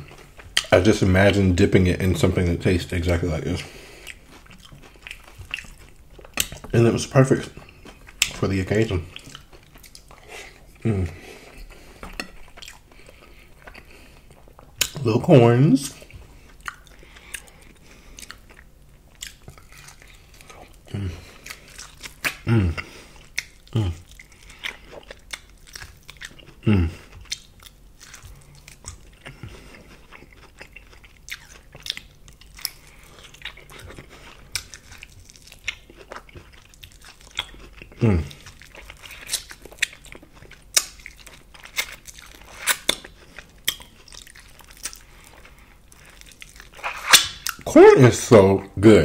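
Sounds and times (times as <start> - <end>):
chewing corn on the cob: 3.0 - 15.0, 15.8 - 47.7
wet mouth noises: 46.3 - 47.7.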